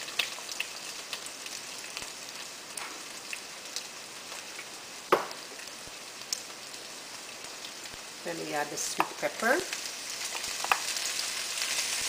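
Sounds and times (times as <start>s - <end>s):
carrots sizzling in oil: 0.0s - 12.0s
crackling pops: 2.7s - 6.6s, 9.0s - 11.0s.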